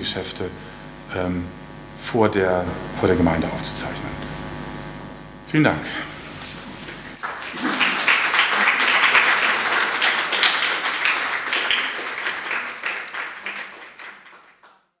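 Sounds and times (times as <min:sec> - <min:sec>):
audience applauding: 0:07.1 - 0:14.9.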